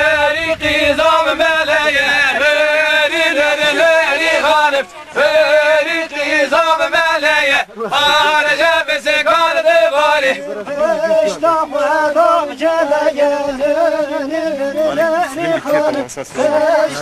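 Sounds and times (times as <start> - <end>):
man singing folk song: 0.0 - 17.0.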